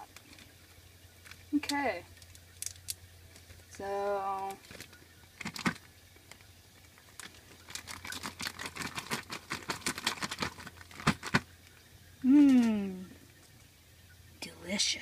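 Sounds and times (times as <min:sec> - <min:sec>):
plastic bag crinkling: 0:04.4 - 0:12.7.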